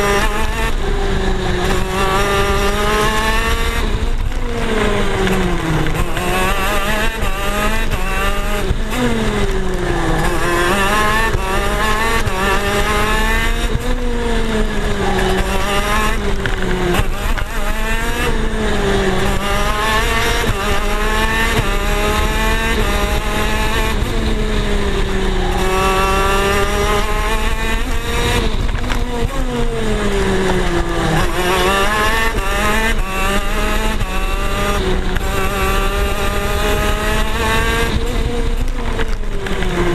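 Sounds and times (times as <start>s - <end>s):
kart engine racing: 0.0s - 39.9s.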